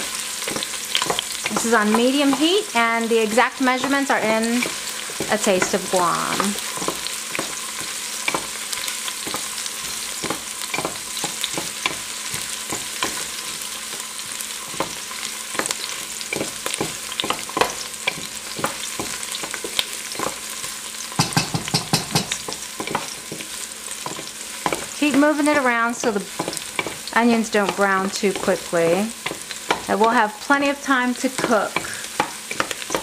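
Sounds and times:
onions sizzling in hot oil: 0.0s - 33.0s.

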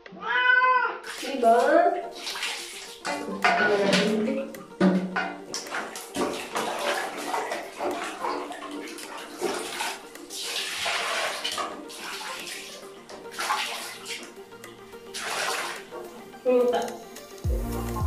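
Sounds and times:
water pouring into metal basin: 1.0s - 4.2s, 5.3s - 14.4s, 15.0s - 16.0s
dipper scooping water: 1.0s - 16.9s.

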